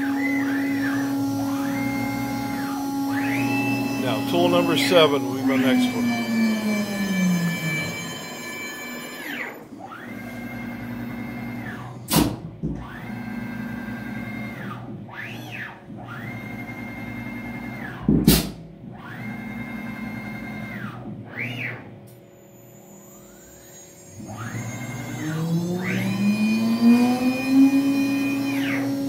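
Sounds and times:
spindle winding down: 0.0 - 11.8, 24.0 - 29.0
drive motors whining: 0.0 - 12.1, 19.0 - 29.0.

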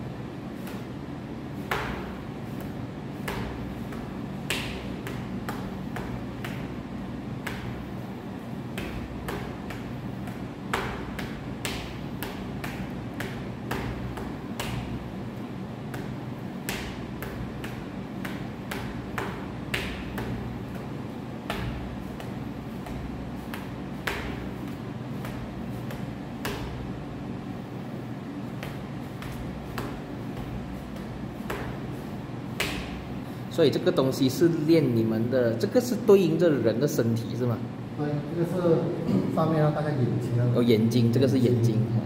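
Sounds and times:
steady low hum: 0.0 - 42.0
knuckle tapping on pads: 1.6 - 33.2.

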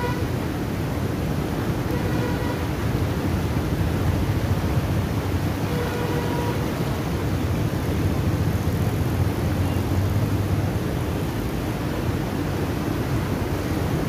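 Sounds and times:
white water rushing: 0.0 - 14.0.

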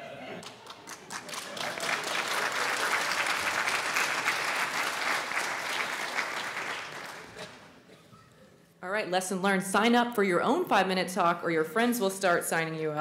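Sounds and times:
audience applauding: 0.4 - 7.8.

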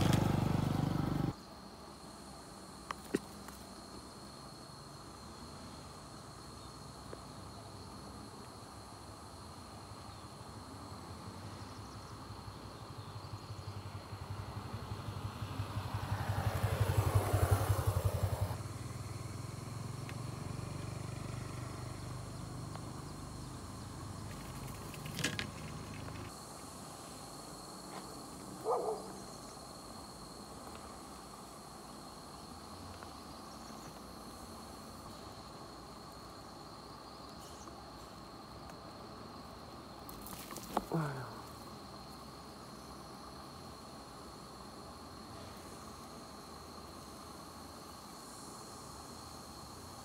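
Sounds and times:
motor vehicle passing: 0.0 - 1.4, 13.8 - 26.3.

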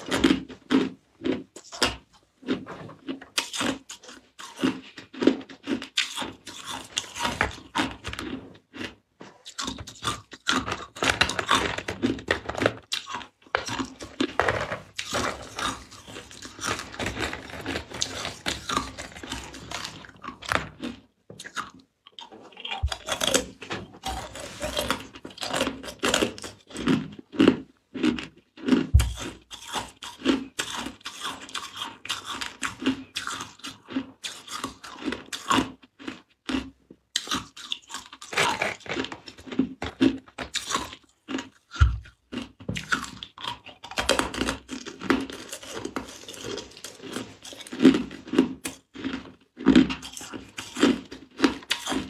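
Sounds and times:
ice cubes crunched in mouth: 3.3 - 21.8, 22.6 - 27.1, 37.2 - 52.0.

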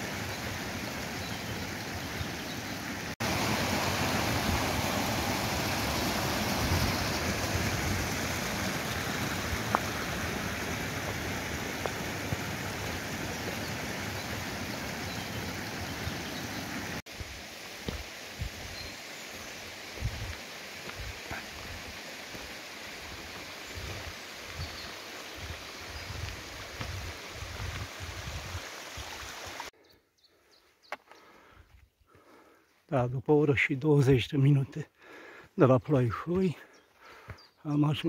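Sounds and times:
stream rushing over rocks: 0.0 - 29.7.

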